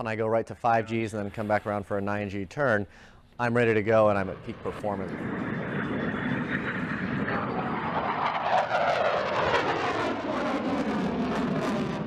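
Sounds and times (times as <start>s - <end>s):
jet engines at high power: 3.6s - 12.0s
thin rising whine: 3.6s - 12.0s
falling pitch sweep: 4.4s - 12.0s.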